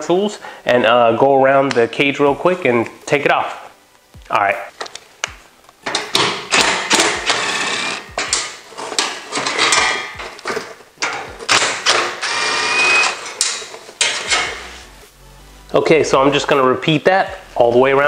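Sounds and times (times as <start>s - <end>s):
cordless power driver running: 6.6s - 8.2s.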